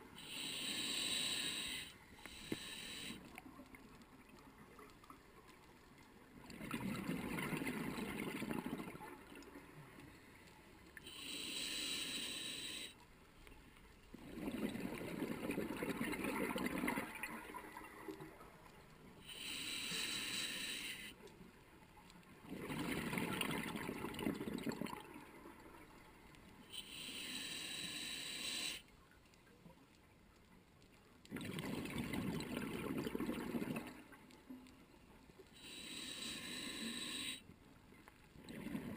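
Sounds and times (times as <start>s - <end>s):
regulator air hiss: 0.2s - 3.3s, 11.1s - 13.0s, 19.3s - 21.2s, 26.7s - 28.8s, 35.6s - 37.4s
exhaled air bubbling: 6.3s - 9.5s, 14.1s - 18.5s, 22.4s - 25.8s, 31.3s - 34.1s, 38.4s - 38.9s.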